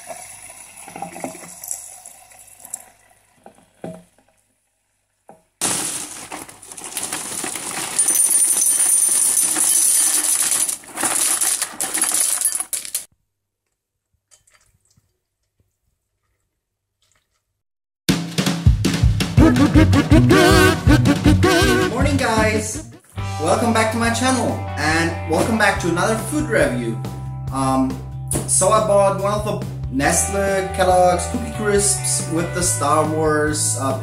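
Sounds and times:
cereal pouring into a bowl: 5.6s - 13.0s.

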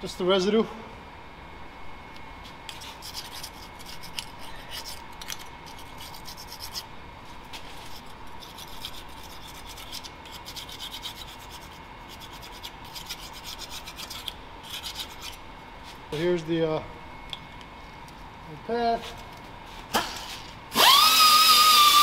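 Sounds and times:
hand scraper rasping on metal: 2.7s - 6.9s, 7.8s - 15.4s.

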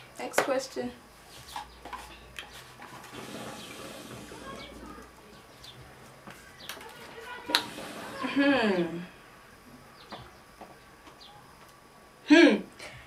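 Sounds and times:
hookah water bubbling: 3.1s - 5.0s.

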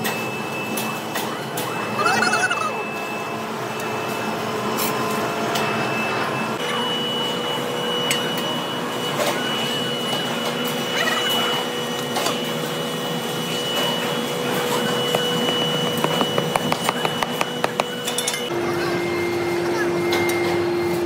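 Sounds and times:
machine tool whining: 11.7s - 18.5s.

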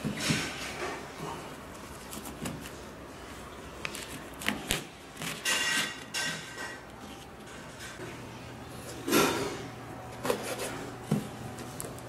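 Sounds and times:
tape and cardboard scraping: 10.2s - 12.0s.

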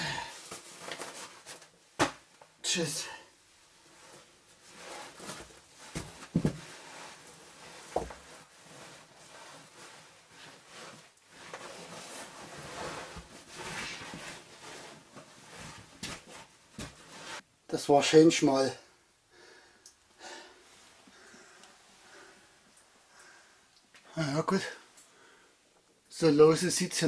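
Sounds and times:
clothing scraping against rock: 3.8s - 17.4s.

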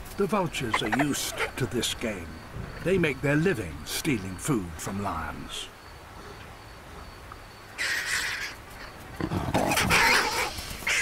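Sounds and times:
lion snarling: 9.2s - 11.0s.

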